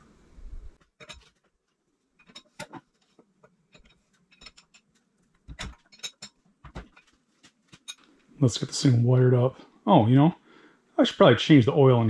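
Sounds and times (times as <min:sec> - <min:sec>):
hand tools clicking and tapping: 0:02.2 - 0:08.2.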